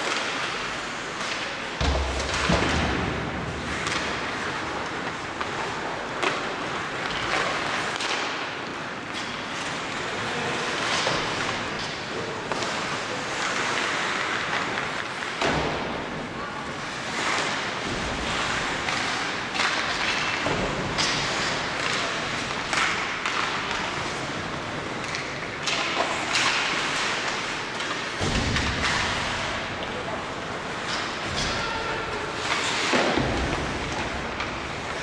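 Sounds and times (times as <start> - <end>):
stick and puck clacks: 0.0 - 35.0
skate blades scraping ice: 16.7 - 35.0.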